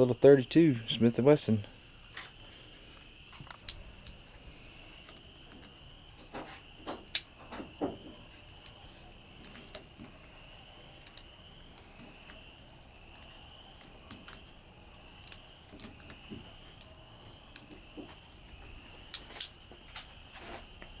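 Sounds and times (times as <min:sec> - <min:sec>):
high-pitched insect trill: 0:00.0 - 0:21.0.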